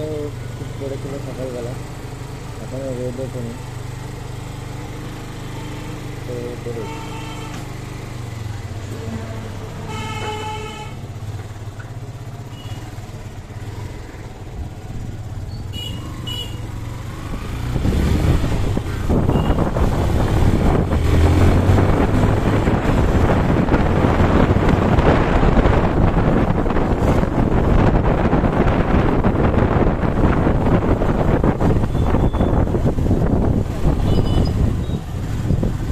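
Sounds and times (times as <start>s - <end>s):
motorcycle engine running: 0.0s - 35.9s
horn beeping: 6.7s - 7.7s, 9.0s - 11.2s, 19.3s - 19.7s, 31.9s - 32.7s, 34.0s - 35.1s
wind rushing over microphone: 17.2s - 35.9s.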